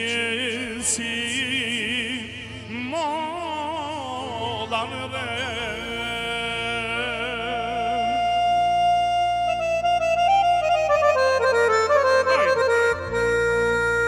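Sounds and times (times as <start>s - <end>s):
person singing with vibrato: 0.0s - 10.0s
steady bass: 7.4s - 14.0s
electronic keyboard playing: 7.7s - 14.0s.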